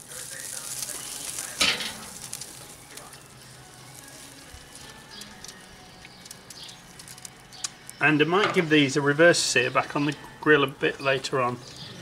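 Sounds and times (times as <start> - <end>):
small crackles: 0.0 - 8.0
chicken sizzling on grill: 0.0 - 12.0.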